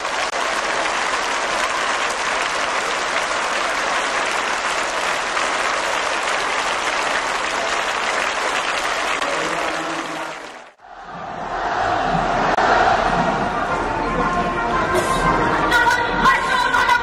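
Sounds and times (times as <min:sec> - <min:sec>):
crowd applauding: 0:00.0 - 0:13.3.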